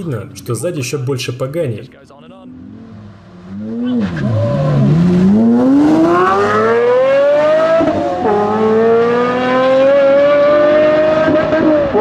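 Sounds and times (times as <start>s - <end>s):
sports car engines accelerating: 2.3s - 12.0s.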